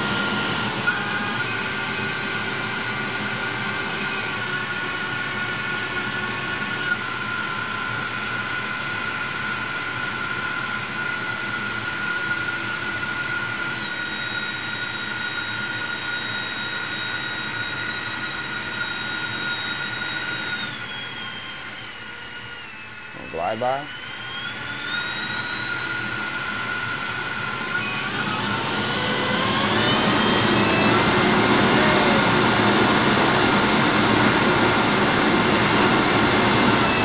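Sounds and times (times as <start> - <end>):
electric ducted fan whine: 20.6 - 37.0.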